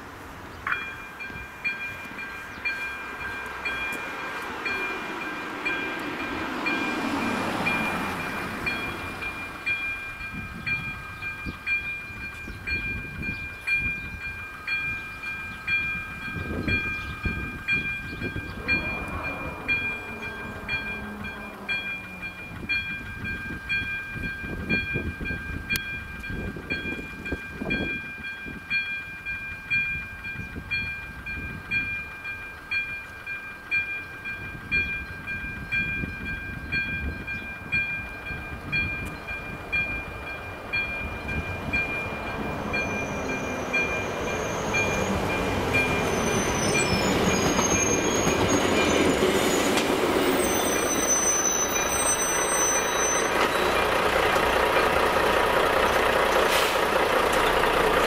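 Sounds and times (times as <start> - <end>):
car passing over crossing: 3.0 - 9.8, 18.2 - 23.1
level crossing two-tone warning signal: 16.8 - 23.9.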